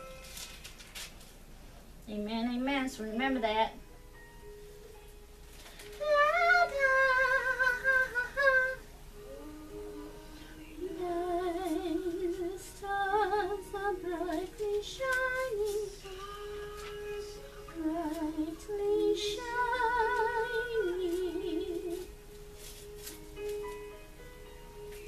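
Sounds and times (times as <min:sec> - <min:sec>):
woman singing slow melody: 0:05.8 - 0:22.2.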